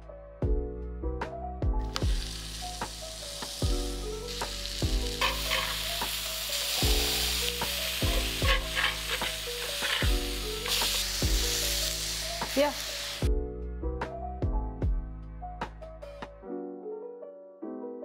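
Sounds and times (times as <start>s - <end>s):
burger patties sizzling: 1.8s - 13.3s
metal spatula scraping: 5.2s - 6.1s, 8.2s - 11.7s.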